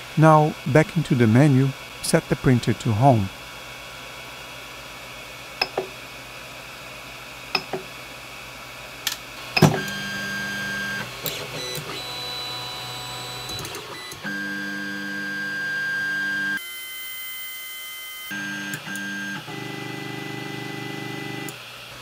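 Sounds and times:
stepper motors whining: 0:09.5 - 0:17.5.

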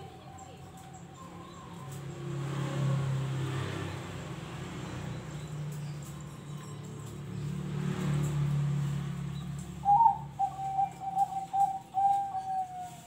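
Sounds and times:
dove cooing: 0:09.8 - 0:13.0.

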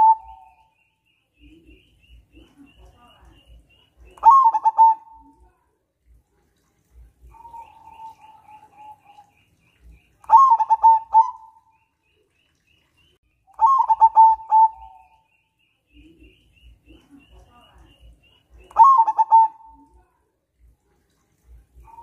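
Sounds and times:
dove cooing: 0:00.0 - 0:00.6, 0:04.1 - 0:05.4, 0:07.2 - 0:09.3, 0:10.3 - 0:11.7, 0:13.6 - 0:15.2, 0:18.7 - 0:19.9
small birds chirping: 0:00.0 - 0:06.2, 0:06.9 - 0:20.2.

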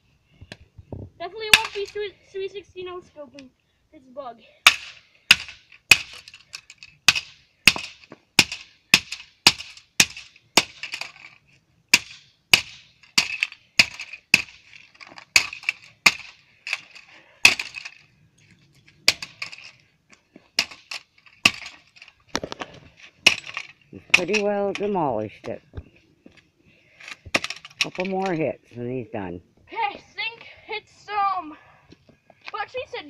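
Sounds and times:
hatchet striking plastic on asphalt: 0:04.6 - 0:06.3, 0:07.0 - 0:11.1, 0:11.9 - 0:17.8.

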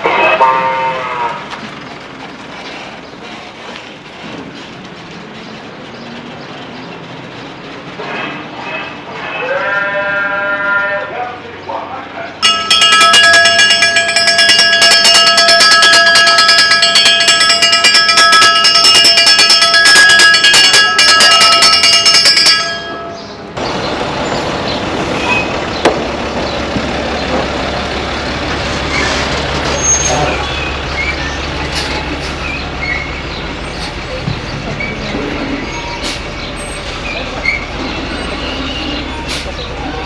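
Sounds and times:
faint street sounds: 0:00.0 - 0:40.0
garbage truck engine idling: 0:01.2 - 0:09.1, 0:12.4 - 0:40.0
hand bell ringing rapidly: 0:12.4 - 0:23.2.

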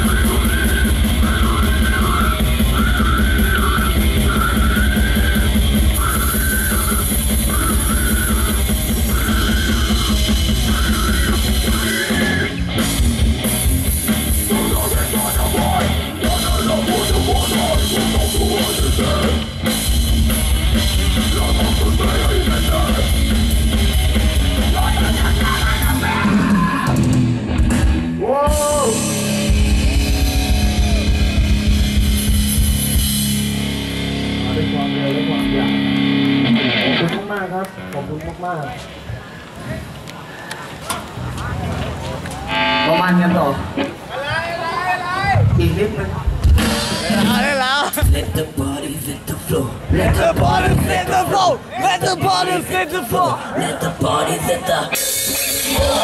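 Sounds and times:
fast kick-drum pulses: 0:00.0 - 0:26.0
death metal band playing: 0:00.0 - 0:37.4, 0:41.2 - 0:44.1, 0:45.2 - 0:49.1, 0:49.9 - 0:56.0.

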